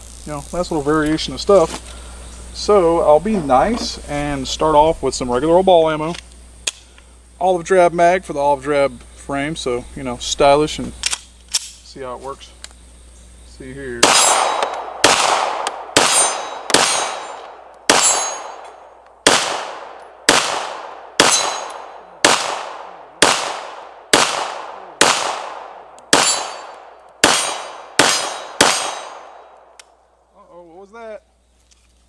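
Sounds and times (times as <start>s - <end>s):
pistol shots echoing: 14.0s - 29.8s.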